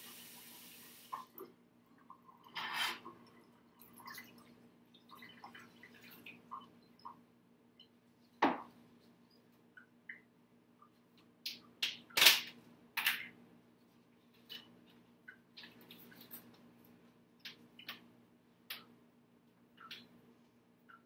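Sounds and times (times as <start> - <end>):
kitchen tap running: 0.0 - 1.4
utensils and cookware clinking: 2.5 - 3.1.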